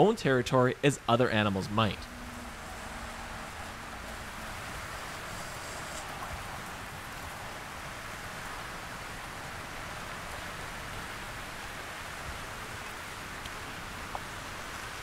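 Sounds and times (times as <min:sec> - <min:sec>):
snakes sliding with rustling hiss: 0:02.3 - 0:07.5.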